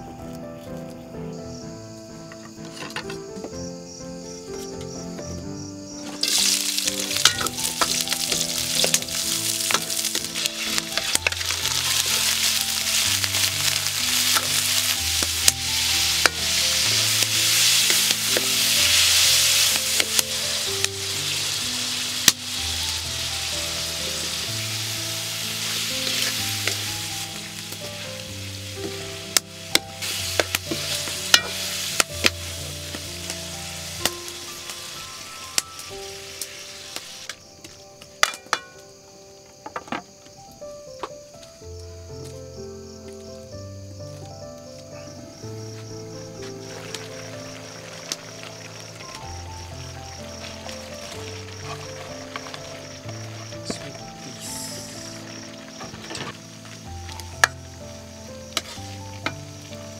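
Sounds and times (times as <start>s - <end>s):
soft background music: 0.0s - 59.9s
food sizzling in a wok: 6.0s - 38.8s, 45.8s - 59.9s
ladle scraping and knocking pan: 6.2s - 15.5s.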